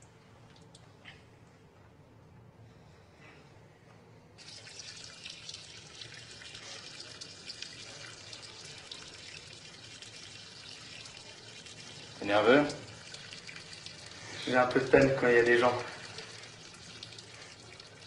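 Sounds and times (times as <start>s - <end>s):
tap running into washbasin: 4.4s - 18.0s.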